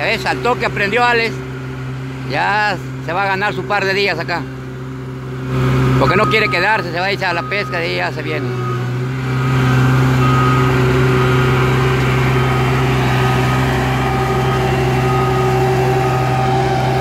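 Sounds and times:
diesel engine running: 0:00.0 - 0:17.0
short beeping alarm: 0:06.0 - 0:07.9, 0:08.5 - 0:17.0.

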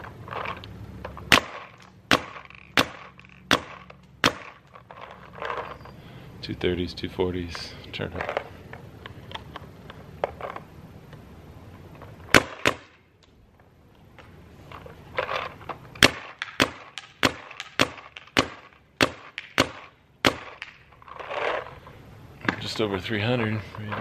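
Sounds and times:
paintball marker shots popping: 0:01.3 - 0:04.8, 0:12.3 - 0:13.4, 0:16.0 - 0:20.8.

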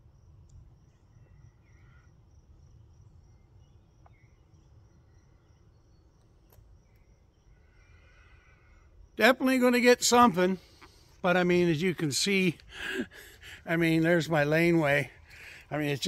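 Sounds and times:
faint bird chirps: 0:00.8 - 0:09.1.

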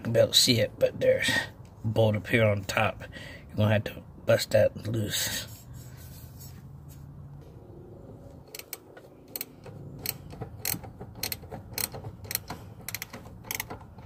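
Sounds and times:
ratchet wrench clicking: 0:08.5 - 0:14.0.

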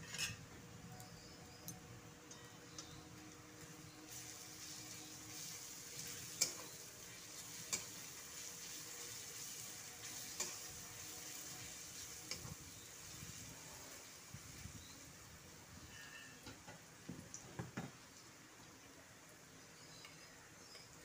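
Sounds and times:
onions sizzling in oil: 0:03.1 - 0:21.0
spatula stirring: 0:04.6 - 0:13.4.

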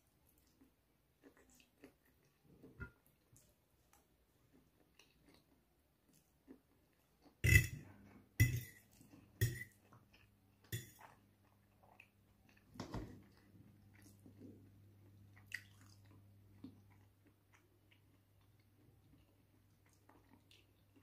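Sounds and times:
chewing noodles: 0:00.2 - 0:08.0, 0:08.8 - 0:21.0
metal fork scraping ceramic plate: 0:07.4 - 0:07.8, 0:08.4 - 0:08.8, 0:09.4 - 0:09.7.

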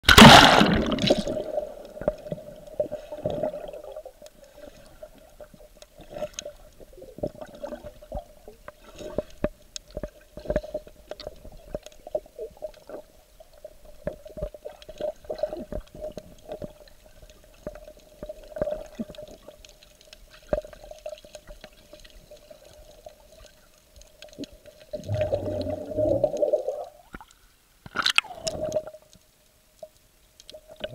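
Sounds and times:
churning water: 0:00.0 - 0:01.6
water splash: 0:00.0 - 0:02.2
muffled underwater water movement: 0:00.0 - 0:30.9.

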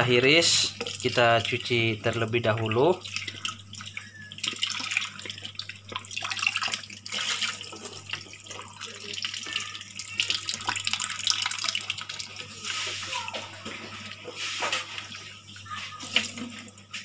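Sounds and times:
tap water splashing in sink: 0:00.7 - 0:15.3, 0:15.9 - 0:17.0
small clicks and knocks in water: 0:00.7 - 0:17.0
hands rubbing and rinsing fruit: 0:10.5 - 0:17.0.

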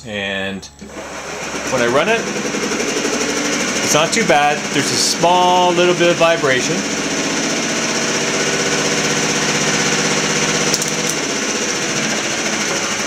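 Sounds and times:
electric motor hum with gear noise: 0:00.8 - 0:13.0.

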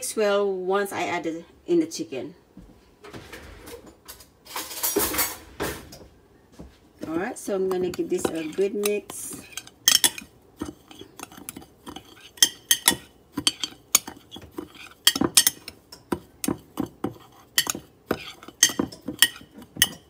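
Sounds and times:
metal utensil scraping glass dish: 0:07.7 - 0:20.0.

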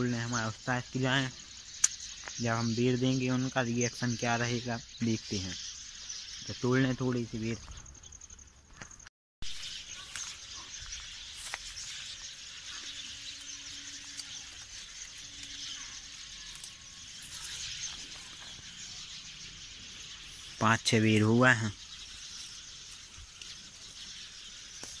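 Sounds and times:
steady high outdoor hiss: 0:00.0 - 0:25.0
leaves and twigs rustling: 0:08.6 - 0:25.0.

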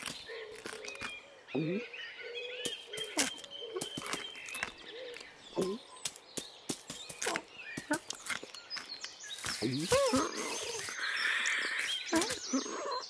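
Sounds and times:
birds chirping: 0:00.0 - 0:13.0
soft quick footstep pats: 0:02.6 - 0:10.9.

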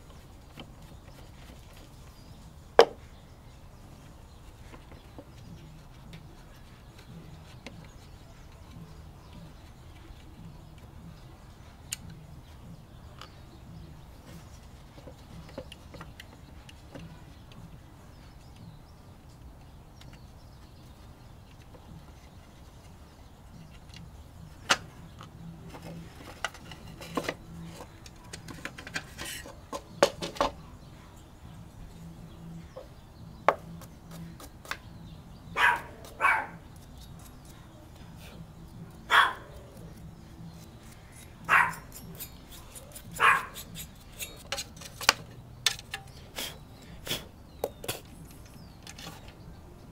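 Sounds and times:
dog barking: 0:35.6 - 0:36.6, 0:39.1 - 0:39.6, 0:41.5 - 0:41.9, 0:43.2 - 0:43.6.

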